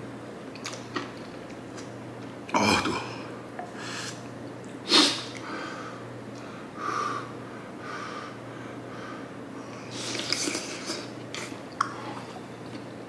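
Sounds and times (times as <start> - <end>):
sharp intake of breath: 3.8 - 4.2, 4.9 - 11.0
person blowing on soup: 4.9 - 5.4
person breathing hard: 5.4 - 9.3.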